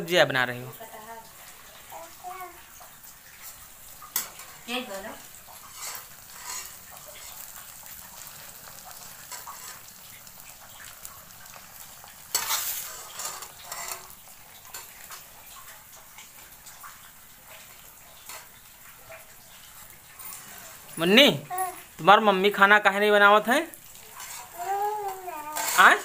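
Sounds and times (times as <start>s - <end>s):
food sizzling in a wok: 0.0s - 26.0s
metal spoon scraping a pan: 5.6s - 7.5s, 9.3s - 9.9s, 12.3s - 15.2s, 18.2s - 18.6s, 20.1s - 20.9s, 24.0s - 26.0s.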